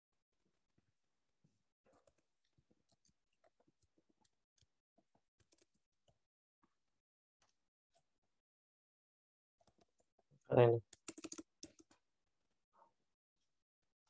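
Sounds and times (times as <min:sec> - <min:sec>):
faint keyboard typing: 0:01.9 - 0:04.7, 0:05.4 - 0:06.2, 0:09.6 - 0:10.1, 0:10.8 - 0:12.0.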